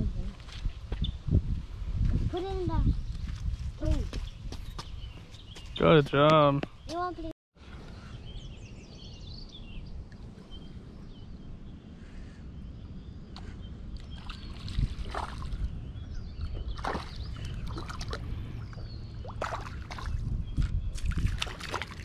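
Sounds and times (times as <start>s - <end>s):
low rumble of wind: 0.0s - 22.0s
small birds chirping: 0.6s - 1.3s, 2.2s - 22.0s
water splashing: 14.0s - 15.7s, 16.6s - 22.0s.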